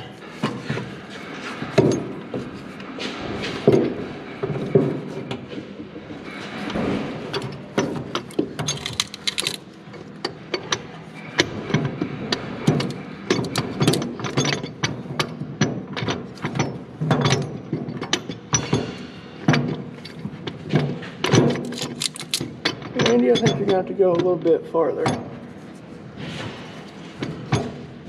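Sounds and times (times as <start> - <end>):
metal clicks and knocks: 7.3 - 12.0, 19.5 - 24.3.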